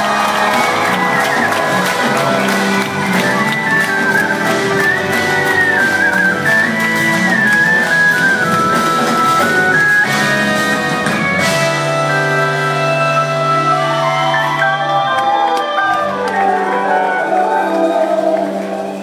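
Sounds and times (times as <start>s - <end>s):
drums: 0.0s - 19.0s
jazz fusion band playing: 0.0s - 19.0s.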